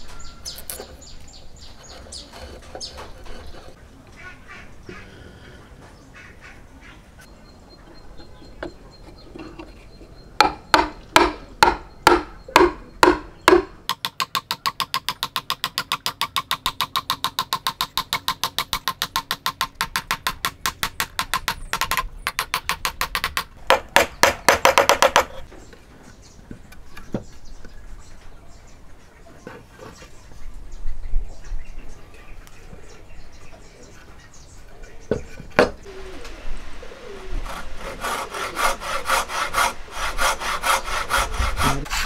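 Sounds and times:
hammer striking wood: 10.4 - 25.4.

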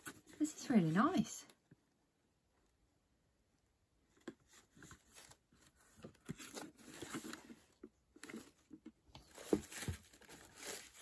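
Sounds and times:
rustling and scraping of packaging: 4.4 - 11.0.

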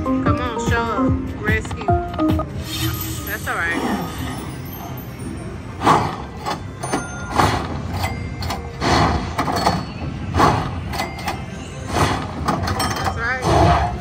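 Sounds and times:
busy background noise: 0.0 - 14.0
slot machine electronic tones: 2.5 - 8.8.

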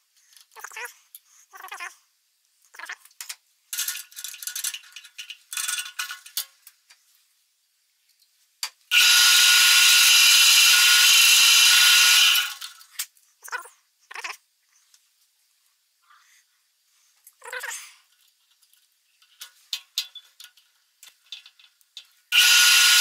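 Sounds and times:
small parts clattering: 2.7 - 7.1, 10.3 - 13.2, 18.0 - 23.0
drill press whining: 8.9 - 12.7, 22.3 - 23.0.

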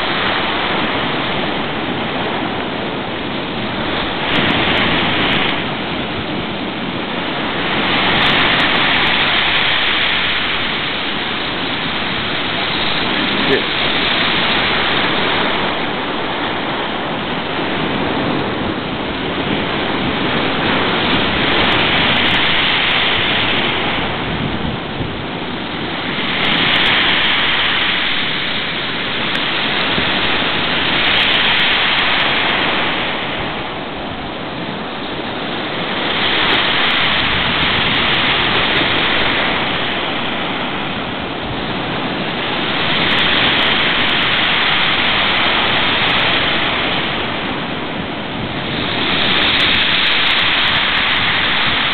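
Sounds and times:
gale wind: 0.0 - 51.9
surf roaring: 0.0 - 51.9.

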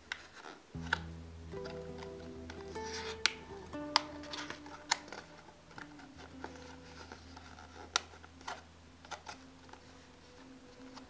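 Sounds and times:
faint background music: 0.0 - 11.0.

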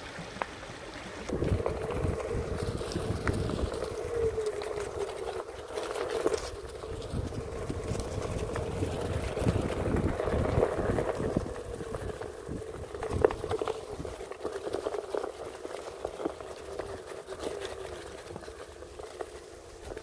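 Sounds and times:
wind on microphone: 1.3 - 5.4, 6.0 - 14.2
electric motor hum: 1.3 - 20.0
tyre rumbling over ground: 1.3 - 20.0.

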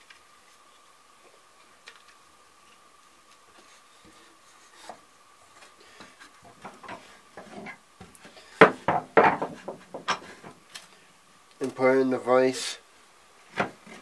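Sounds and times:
faint steady hum: 0.0 - 14.0
wood rubbing and knocking: 3.5 - 10.6, 13.5 - 14.0
sharp wooden clunks: 8.6 - 10.2.

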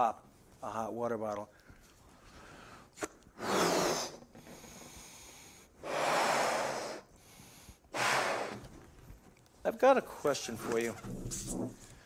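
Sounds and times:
man blowing up a balloon: 3.3 - 8.7.

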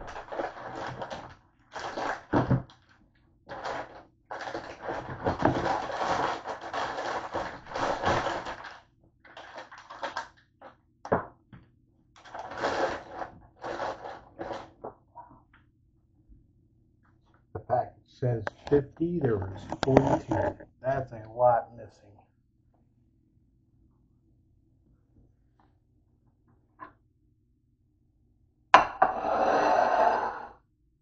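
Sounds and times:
rustling and scraping: 12.2 - 15.0, 18.5 - 20.6.

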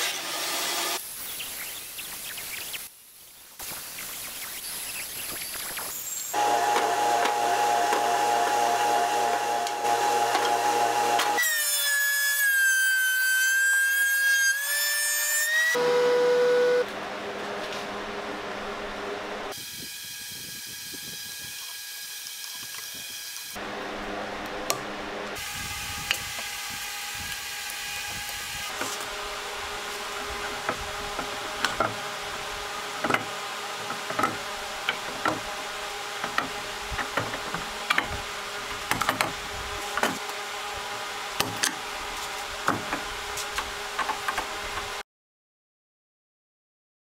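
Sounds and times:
shop hum: 6.0 - 11.8, 15.8 - 20.9, 23.6 - 45.0.

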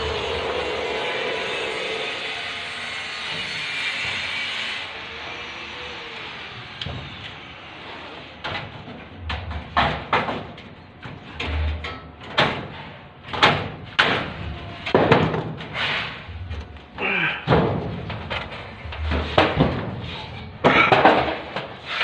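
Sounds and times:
construction knocks and bangs: 6.8 - 7.5, 8.3 - 22.0.

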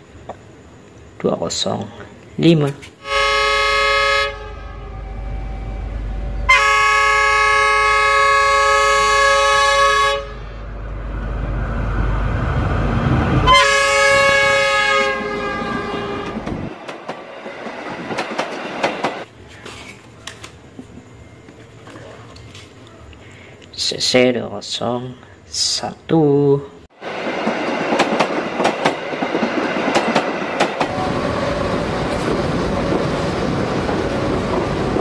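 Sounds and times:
low rumble of train: 0.0 - 22.2, 26.9 - 35.0
locomotive air horn blasts: 3.0 - 10.7, 13.4 - 16.5.

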